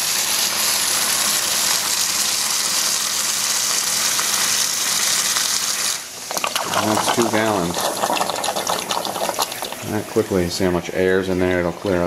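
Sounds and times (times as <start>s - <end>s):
coolant splashing into bucket: 6.1s - 10.4s.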